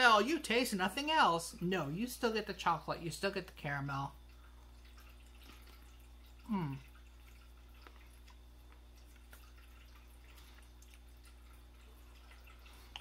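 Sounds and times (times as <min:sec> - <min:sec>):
low electrical hum: 0:00.0 - 0:13.0
wet chewing mouth clicks: 0:05.4 - 0:13.0
person humming mmm: 0:06.4 - 0:07.0.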